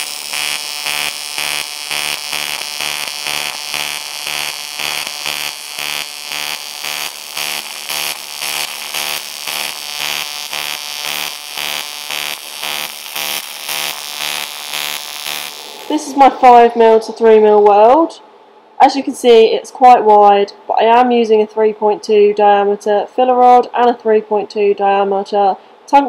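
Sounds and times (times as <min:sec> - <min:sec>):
pulsing welding arc buzz: 0:00.0 - 0:17.5.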